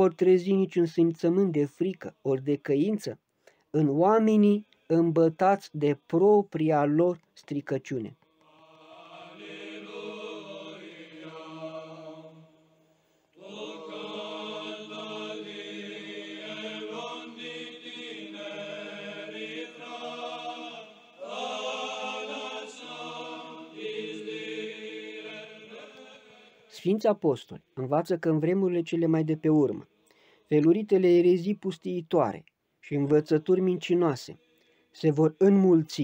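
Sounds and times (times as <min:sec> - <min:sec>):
slow choral chant: 0:08.2 - 0:26.8.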